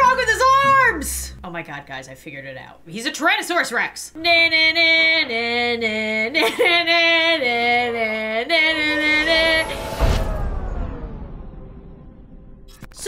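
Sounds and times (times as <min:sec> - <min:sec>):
deep boom: 0:09.0 - 0:13.0.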